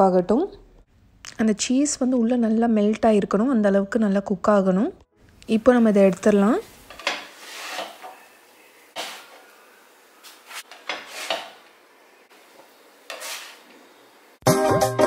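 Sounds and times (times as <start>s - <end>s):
spatula scraping a pan: 6.8s - 8.2s, 8.9s - 9.5s, 10.2s - 11.7s, 13.0s - 13.8s.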